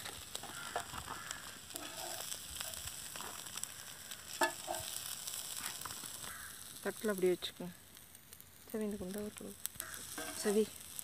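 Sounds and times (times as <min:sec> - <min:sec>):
liver sizzling in an iron pan: 0:00.0 - 0:11.0
spoon scraping a pan: 0:00.4 - 0:03.4, 0:04.3 - 0:05.1, 0:09.8 - 0:10.6.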